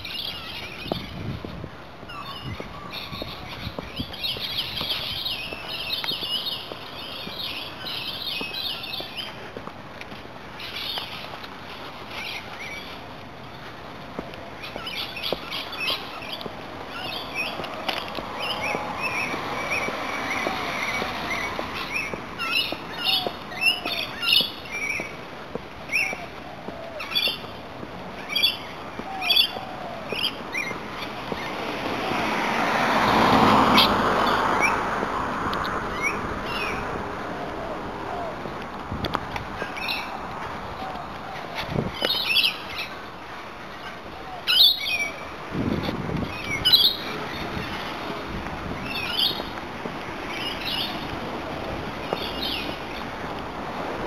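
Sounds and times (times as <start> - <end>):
birds chirping: 0.0 - 53.9
car passing: 15.5 - 24.4, 29.1 - 54.0.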